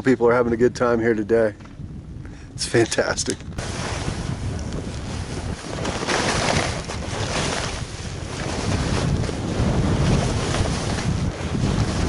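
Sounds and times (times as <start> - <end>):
wind rushing over microphone: 0.0 - 12.0
skis hissing through snow: 3.6 - 12.0.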